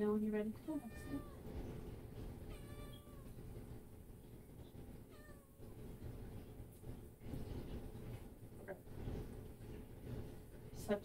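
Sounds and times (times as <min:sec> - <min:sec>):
cat meowing: 0:00.7 - 0:01.5, 0:02.5 - 0:03.4, 0:05.1 - 0:05.8.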